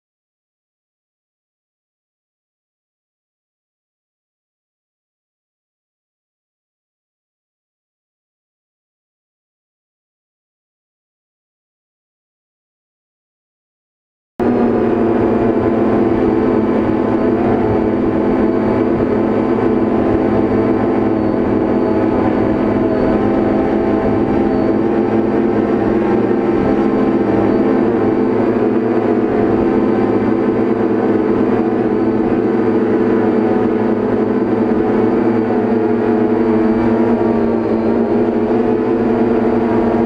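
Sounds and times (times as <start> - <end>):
drone motors humming: 14.4 - 40.0.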